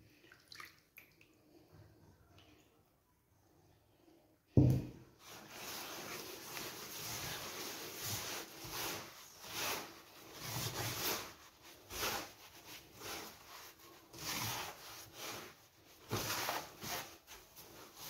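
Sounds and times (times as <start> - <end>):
hands rubbing semolina in bowl: 5.2 - 18.0.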